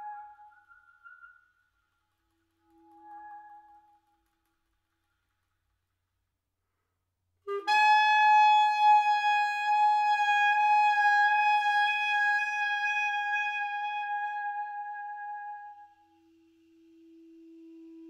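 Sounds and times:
clarinet notes: 7.4 - 18.0.

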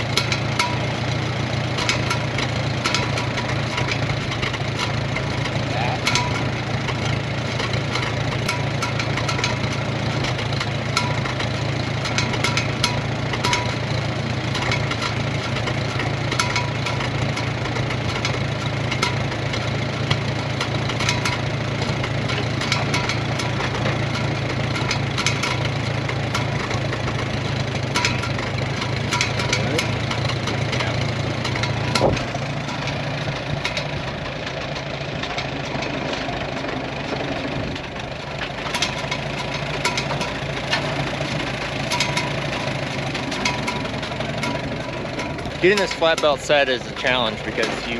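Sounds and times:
tractor engine running: 0.0 - 47.9
sharp ticks: 37.6 - 47.9.

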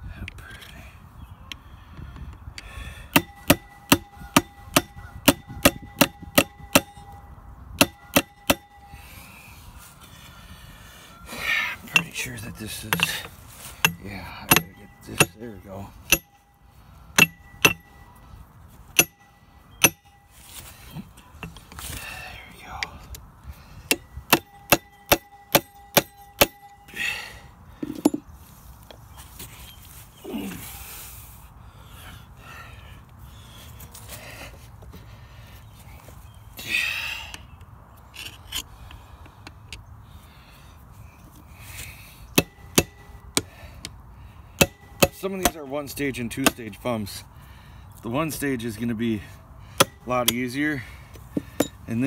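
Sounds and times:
hammer striking metal chisel: 3.1 - 9.0, 11.9 - 16.6, 17.2 - 18.2, 19.0 - 20.3, 23.9 - 27.0, 42.4 - 43.5, 44.6 - 45.7, 46.4 - 46.7, 49.8 - 50.5, 51.4 - 51.8
metal tool tapping pump housing: 3.1 - 9.1, 11.8 - 18.2, 18.9 - 20.3, 23.9 - 27.0, 27.8 - 28.3, 42.3 - 44.0, 44.6 - 46.7, 49.8 - 50.6, 51.2 - 52.0.

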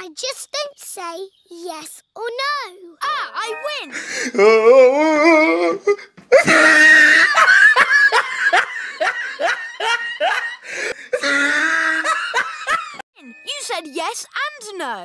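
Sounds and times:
loud hearty laughter: 6.3 - 13.0.

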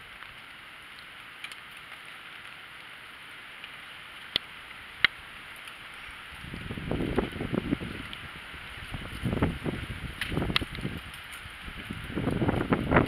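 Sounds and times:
wet outdoor hiss: 0.0 - 13.0.

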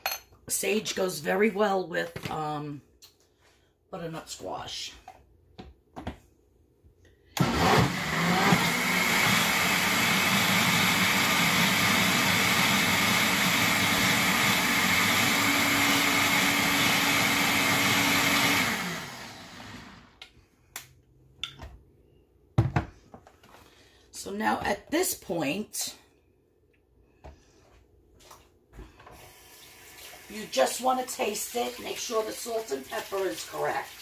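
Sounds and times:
blender running: 7.4 - 20.2.

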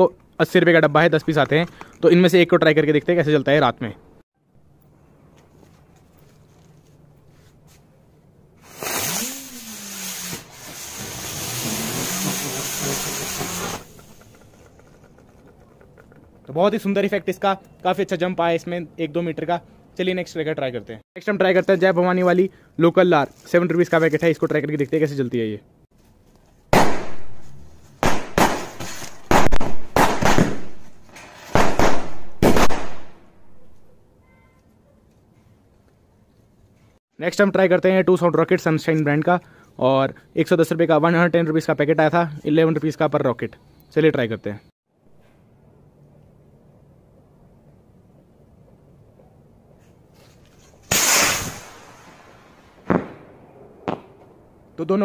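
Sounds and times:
firework hissing: 8.6 - 14.5, 50.8 - 52.4
firecrackers banging: 8.6 - 14.8, 26.7 - 33.0, 50.9 - 54.3.

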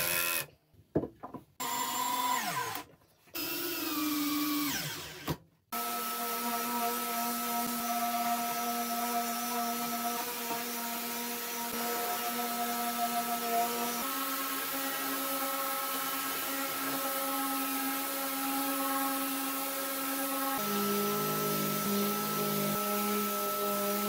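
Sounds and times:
cordless drill running: 1.6 - 2.8, 3.4 - 6.4
orbital sander sanding boards: 5.8 - 24.0.

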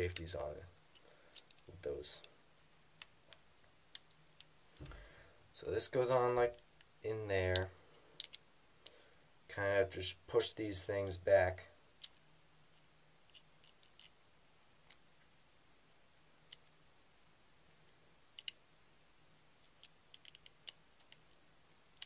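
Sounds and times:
small metal and plastic clicks: 0.9 - 2.3, 7.5 - 8.4, 12.0 - 12.2, 13.3 - 14.2, 18.4 - 18.6, 19.6 - 22.0.

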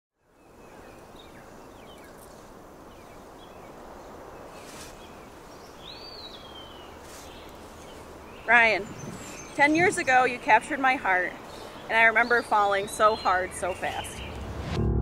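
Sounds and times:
low rushing background: 14.1 - 15.0.

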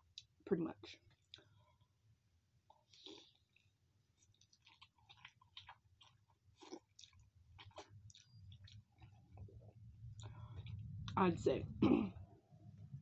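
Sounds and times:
chewing noodles: 1.0 - 2.0, 2.6 - 11.2.

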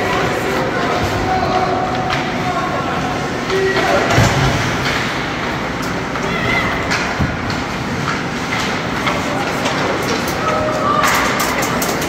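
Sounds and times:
hockey sticks and puck clicking: 0.0 - 2.6, 4.8 - 12.0
arena crowd noise: 0.0 - 12.0
people shouting: 6.2 - 7.2.

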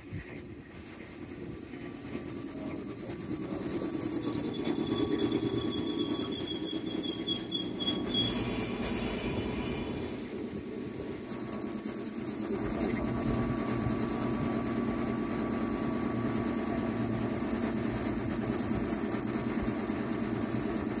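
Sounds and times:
train wheels rumbling: 0.0 - 21.0
thin high squeal: 4.2 - 10.3.

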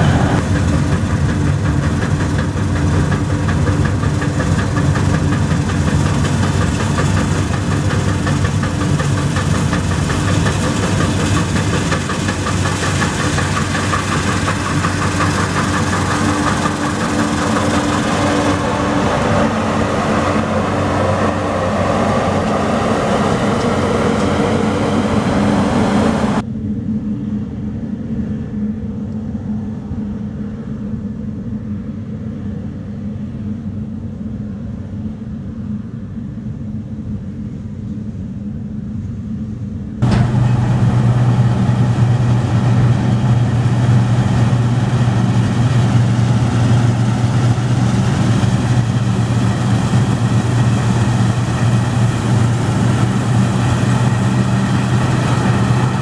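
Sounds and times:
threshing machinery noise: 0.0 - 26.4, 40.0 - 56.0
combine harvester engine drone: 0.0 - 56.0.

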